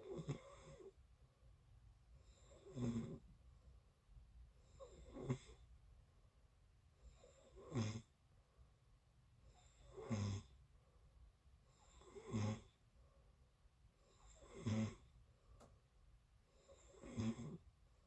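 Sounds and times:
person snoring: 0:02.2 - 0:03.2, 0:07.1 - 0:08.1, 0:09.6 - 0:10.6, 0:11.8 - 0:12.8, 0:14.1 - 0:15.1, 0:16.6 - 0:17.6.

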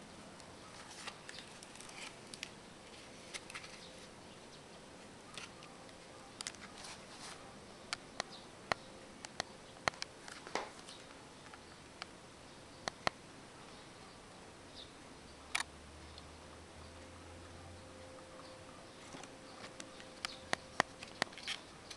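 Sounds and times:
stiff card rustling: 0:06.4 - 0:07.6.

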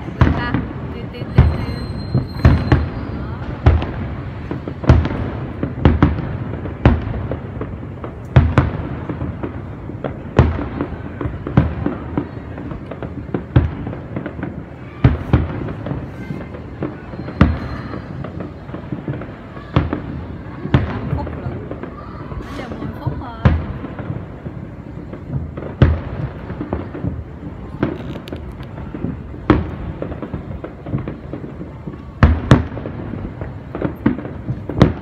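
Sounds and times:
firework shells bursting: 0:00.0 - 0:12.1, 0:20.7 - 0:35.0
firework crackle: 0:00.0 - 0:35.0.

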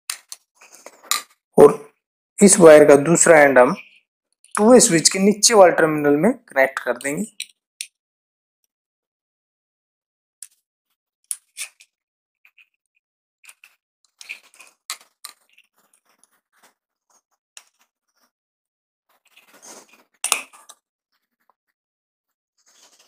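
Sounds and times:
screwdriver clicking and scraping: 0:13.4 - 0:15.6.

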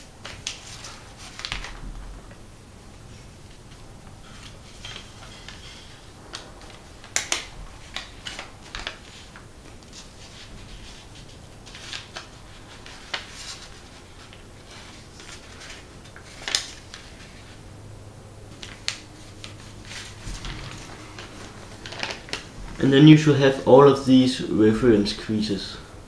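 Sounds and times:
paper rustling and crackling: 0:00.0 - 0:17.7, 0:18.4 - 0:24.2.

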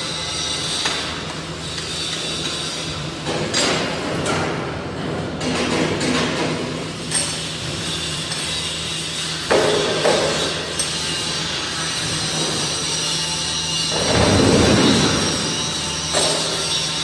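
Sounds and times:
machine hum: 0:10.6 - 0:17.0.

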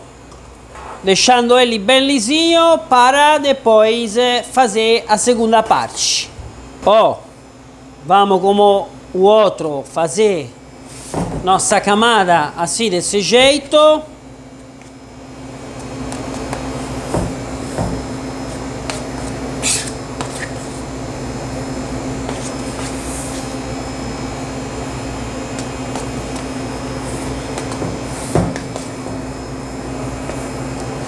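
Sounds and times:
steady machine hum: 0:00.0 - 0:31.0.

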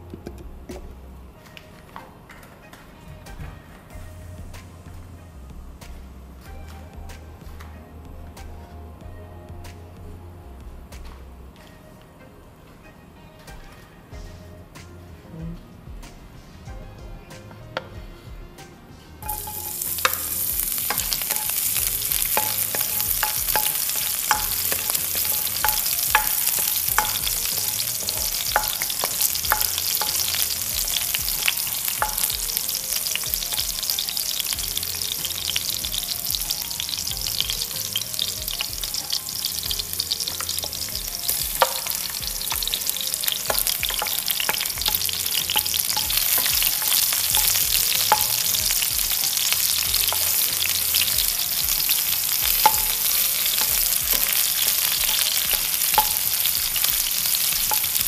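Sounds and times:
garlic sizzling in hot oil: 0:19.2 - 0:58.0.

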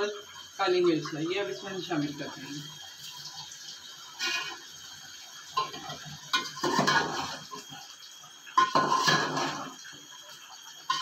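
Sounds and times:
metal spoon scraping a pot: 0:04.2 - 0:04.6, 0:08.6 - 0:09.7.

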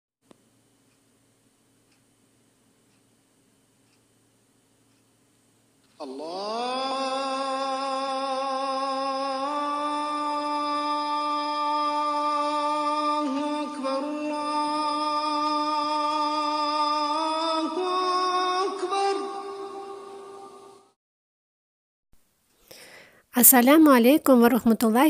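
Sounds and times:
person chanting long note: 0:06.0 - 0:20.9.

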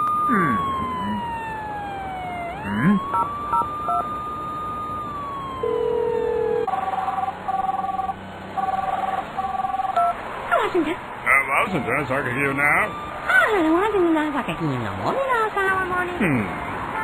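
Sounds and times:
ambulance siren wailing: 0:00.0 - 0:10.0, 0:11.4 - 0:14.5
phone ringing: 0:03.0 - 0:04.5, 0:05.6 - 0:10.2.

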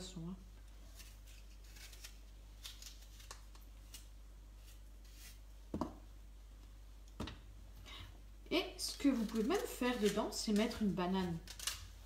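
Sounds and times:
knife slicing apples: 0:00.7 - 0:06.0, 0:08.8 - 0:12.0.

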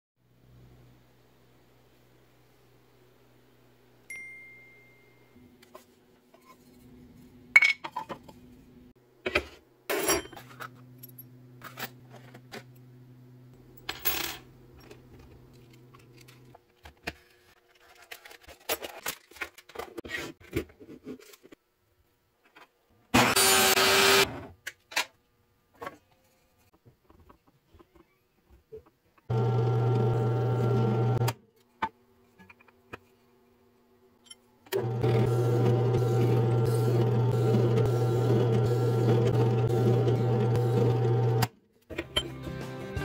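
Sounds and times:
table saw cutting board: 0:23.2 - 0:24.5, 0:34.8 - 0:41.5.

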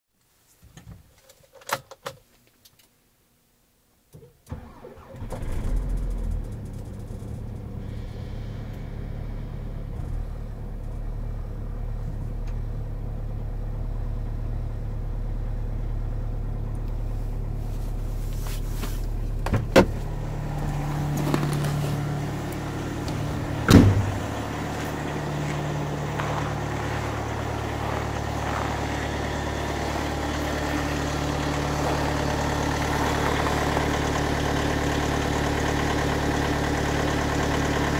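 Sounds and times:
engine cranking: 0:04.5 - 0:11.0, 0:18.1 - 0:35.3
diesel engine idling: 0:04.6 - 0:37.9
sharp knocks: 0:23.6 - 0:24.2.

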